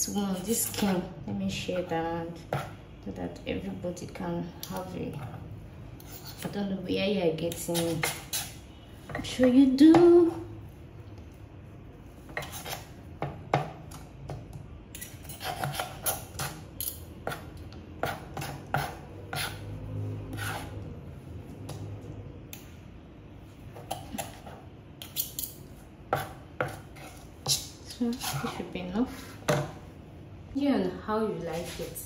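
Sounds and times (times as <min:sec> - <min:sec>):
cutlery scraping on plastic board: 0:12.3 - 0:12.9, 0:15.0 - 0:19.6, 0:23.8 - 0:29.8.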